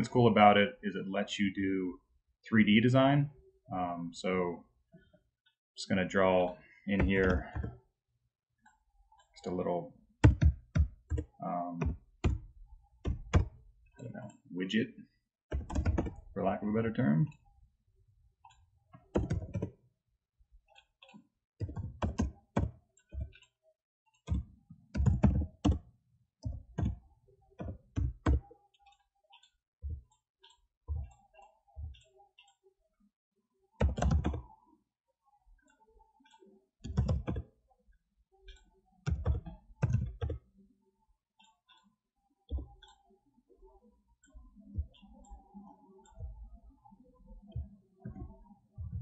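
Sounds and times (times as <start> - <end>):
keyboard typing: 6.9 - 7.8, 9.4 - 14.3, 15.5 - 16.4, 18.4 - 19.8, 20.7 - 32.6, 33.8 - 34.6, 36.2 - 37.5, 38.5 - 40.5.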